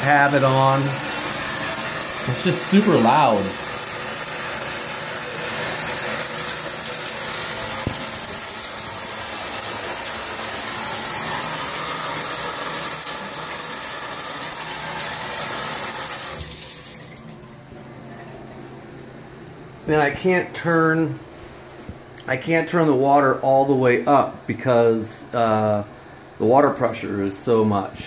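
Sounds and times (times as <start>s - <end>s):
shower water spraying onto tile: 0.0s - 17.3s.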